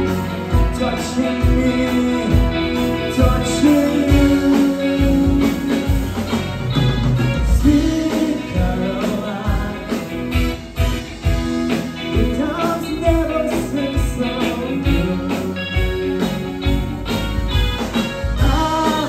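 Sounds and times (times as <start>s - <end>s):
man singing long notes: 0.0s - 6.0s, 7.5s - 10.3s
live band playing: 0.0s - 19.0s.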